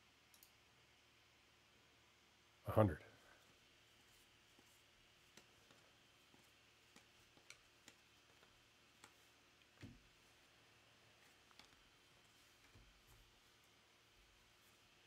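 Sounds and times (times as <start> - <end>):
faint clicks: 0.3 - 0.6.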